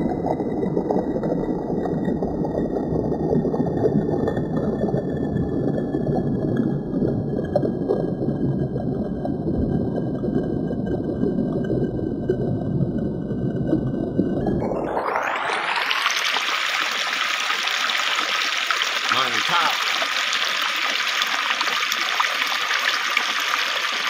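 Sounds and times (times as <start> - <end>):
stream water over rocks: 14.4 - 24.0.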